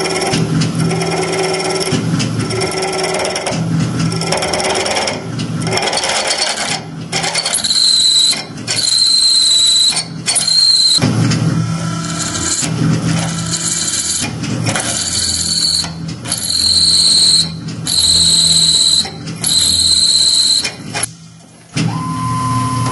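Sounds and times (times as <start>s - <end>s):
drill boring steel pulsing: 0.0s - 11.0s, 11.7s - 21.1s
high-pitched drill squeal: 7.4s - 11.0s, 14.9s - 20.8s.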